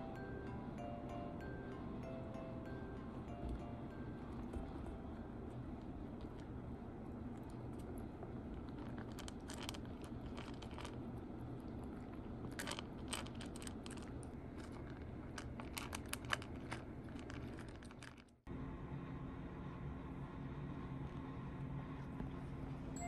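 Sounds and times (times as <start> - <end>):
kitten crunching dry kibble: 5.5 - 18.4.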